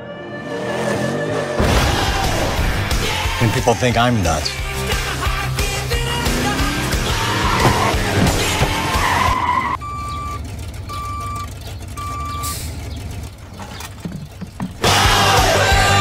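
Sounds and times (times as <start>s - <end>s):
vehicle skidding: 6.1s - 16.0s
trash cans clattering: 7.4s - 9.2s, 13.4s - 15.1s
high electronic beeps: 9.8s - 12.6s.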